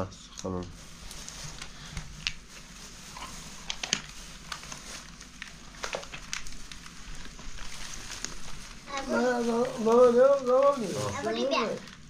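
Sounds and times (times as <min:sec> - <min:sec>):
small objects clicking and rustling: 0:03.1 - 0:12.0.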